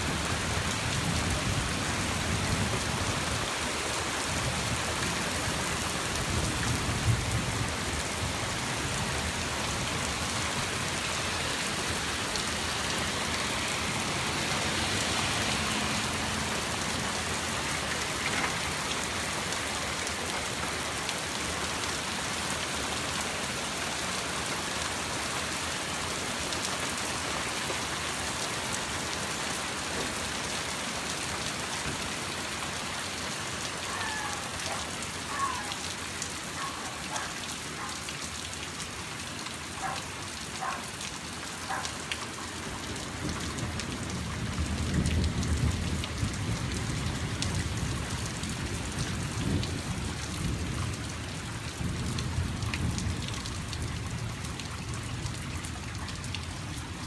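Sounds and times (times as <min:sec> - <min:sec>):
steady rain falling: 0:00.0 - 0:57.0
low rumble of thunder: 0:43.6 - 0:51.1.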